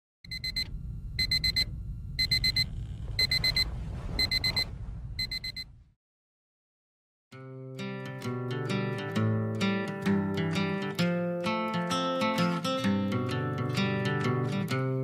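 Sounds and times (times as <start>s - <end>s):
electronic alarm beeping: 0.3s - 5.7s
steady low rumble: 0.3s - 5.8s.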